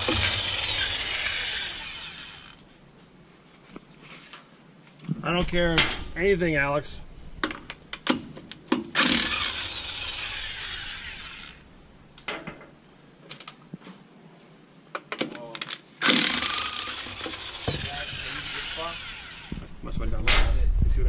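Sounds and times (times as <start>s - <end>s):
impact wrench hammering: 0.0s - 2.5s, 16.0s - 19.6s.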